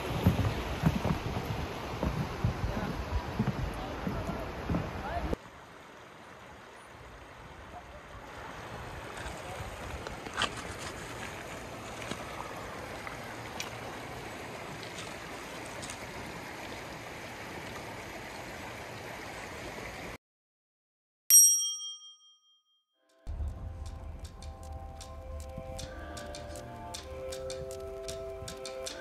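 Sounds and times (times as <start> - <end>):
river running over stones: 0.0 - 20.2.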